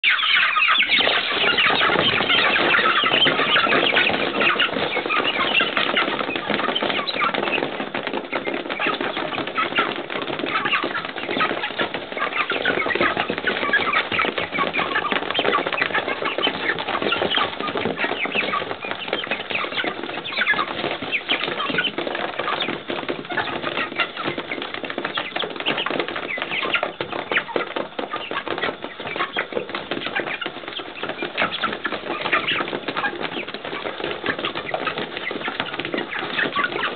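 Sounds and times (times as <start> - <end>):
chicken calls: 0.0 - 36.9
chickens jostling and pecking: 0.0 - 36.9
wings flapping: 0.0 - 36.9.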